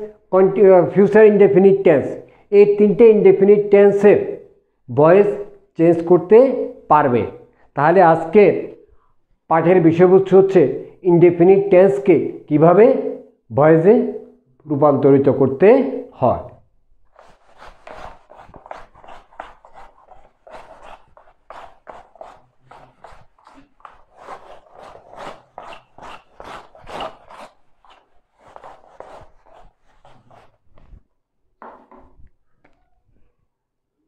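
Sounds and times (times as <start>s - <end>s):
whiteboard being wiped by hand: 17.1s - 31.0s.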